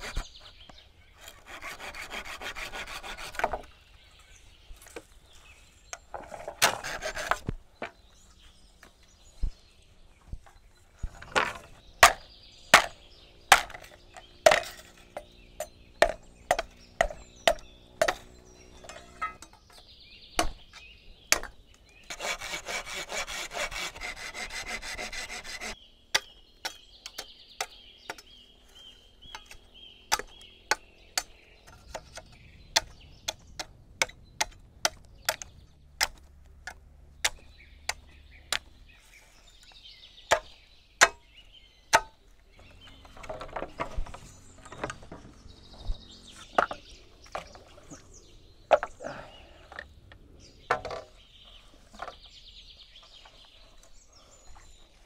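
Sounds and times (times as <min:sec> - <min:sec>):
steady rasping: 0:01.2 - 0:03.6, 0:22.1 - 0:26.3
sharp wooden knocks: 0:12.8 - 0:14.8, 0:16.0 - 0:19.4, 0:40.3 - 0:41.2, 0:41.9 - 0:42.2.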